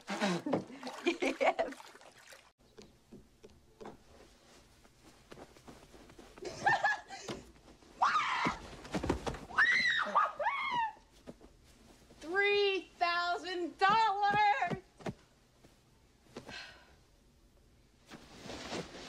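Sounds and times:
woman laughing: 6.4 - 7.4
woman squealing and whooping: 8.0 - 8.6, 9.5 - 11.1.

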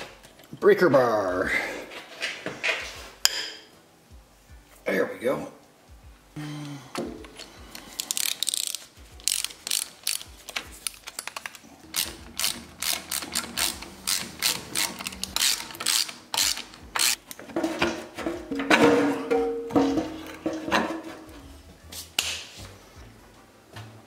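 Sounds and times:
ratchet wrench clicking: 7.7 - 17.2.

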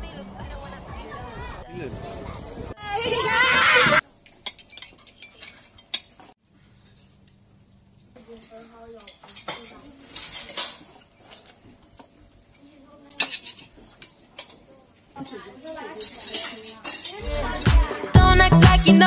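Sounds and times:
cutlery clatter: 4.2 - 7.4, 8.3 - 17.2
cutlery clinking on plates: 4.2 - 7.4, 8.3 - 17.2.

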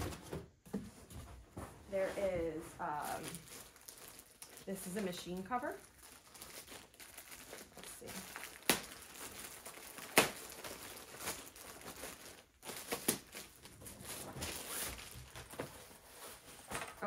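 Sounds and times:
plastic bag crinkling: 2.2 - 16.7.

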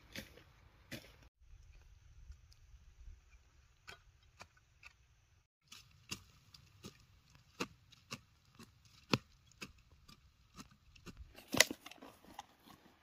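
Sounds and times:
hand hoe chopping into soil: 0.0 - 1.2, 3.3 - 5.0, 5.6 - 13.0.

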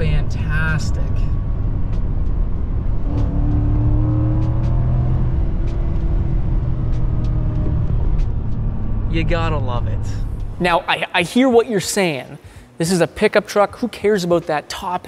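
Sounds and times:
truck engine accelerating: 0.0 - 10.9.

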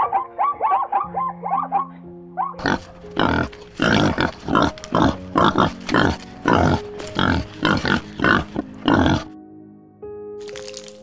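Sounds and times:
soft background music: 0.0 - 11.0.

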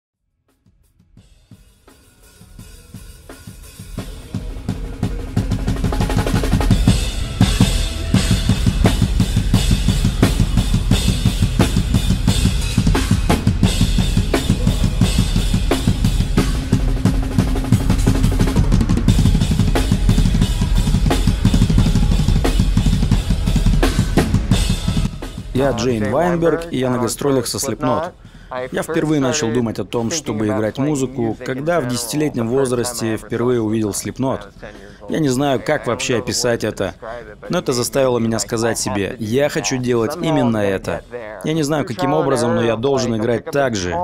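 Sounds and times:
bass drum strokes: 1.1 - 27.6
cymbal crashes: 1.4 - 25.8.

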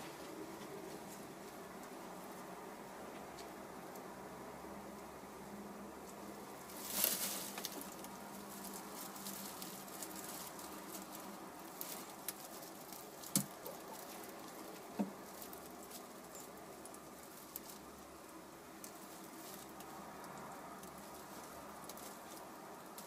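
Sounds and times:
hens rustling in straw: 0.0 - 23.0.

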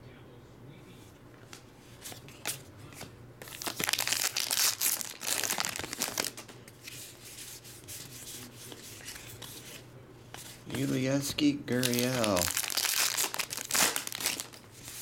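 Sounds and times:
card pack wrappers tearing: 3.4 - 6.4, 11.7 - 15.0
cards clicking and rustling: 10.4 - 15.0.

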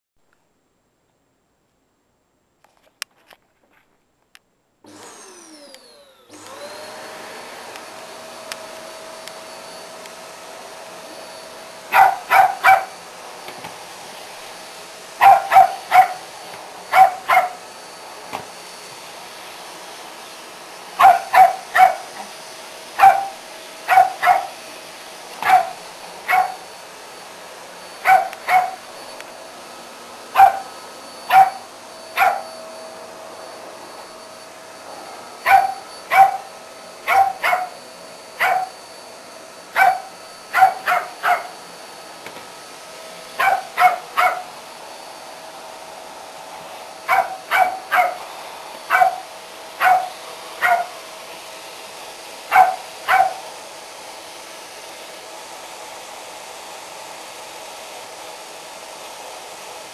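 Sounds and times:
vacuum cleaner running: 4.8 - 59.9
dog yapping: 11.9 - 13.0, 15.2 - 16.3, 16.9 - 17.6, 21.0 - 22.2, 23.0 - 24.6, 25.4 - 26.6, 28.0 - 28.8, 30.3 - 30.7, 31.3 - 32.5, 35.4 - 37.8, 38.4 - 38.7, 39.8 - 41.6, 43.4 - 44.5, 47.1 - 48.3, 48.9 - 51.0, 52.5 - 53.4.

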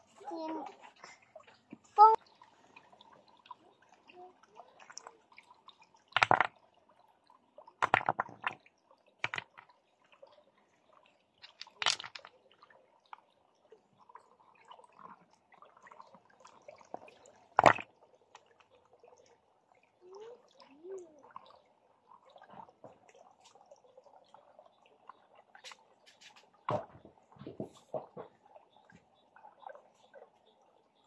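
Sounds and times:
trickle of running water: 0.0 - 31.0
water splashing in stream: 1.6 - 6.8, 7.4 - 10.2, 11.4 - 18.8.

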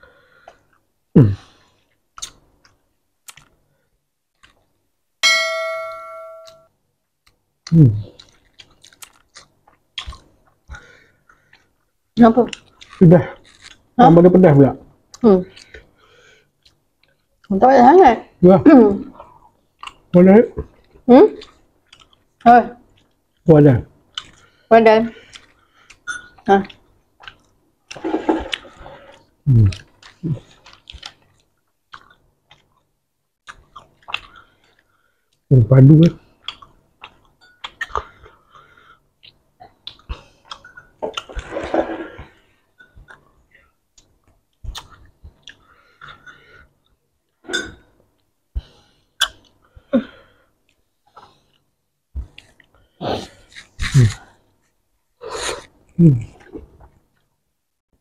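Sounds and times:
chewing and lip smacks: 1.9 - 3.6, 8.1 - 11.7, 20.8 - 22.3, 24.1 - 24.5, 26.7 - 28.8, 29.7 - 35.4, 36.4 - 38.4, 39.2 - 41.5, 44.0 - 47.0
short low vocal sounds: 7.7 - 8.1, 56.0 - 56.4
close chewing: 12.5 - 13.9
wet mouth clicks: 44.7 - 46.2, 49.2 - 49.5.

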